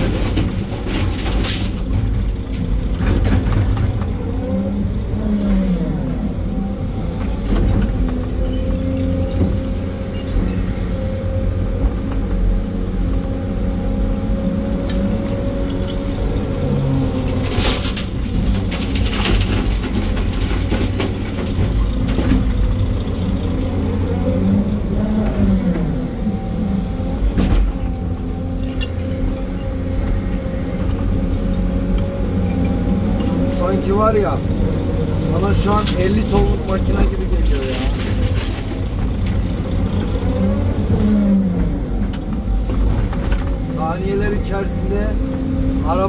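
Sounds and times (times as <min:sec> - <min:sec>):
soil and rock clatters: 0:00.0 - 0:04.7, 0:14.9 - 0:25.9, 0:27.2 - 0:46.0
excavator diesel engine: 0:00.0 - 0:46.0.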